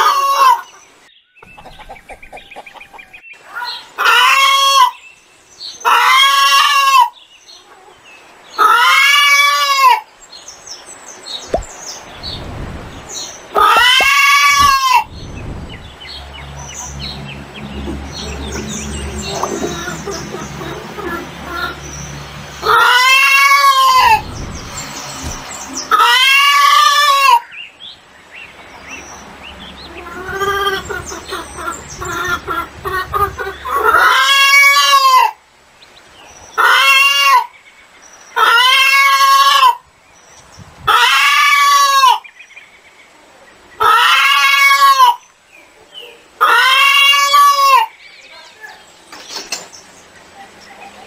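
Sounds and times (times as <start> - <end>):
chickens calling: 0.0 - 10.2, 11.2 - 42.4, 43.5 - 51.0
chickens clucking: 1.4 - 5.0, 13.5 - 27.4, 28.4 - 35.9.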